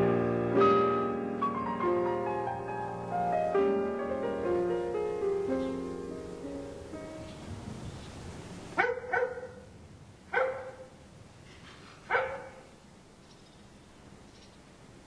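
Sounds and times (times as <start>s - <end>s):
dog barking: 8.8s - 9.7s, 10.3s - 11.0s, 12.0s - 12.7s.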